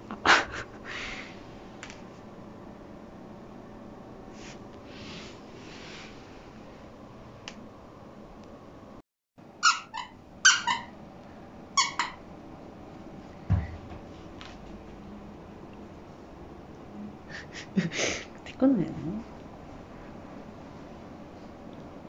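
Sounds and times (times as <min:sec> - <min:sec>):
puppy barking high-pitched yips: 0:09.6 - 0:10.9, 0:11.8 - 0:12.2.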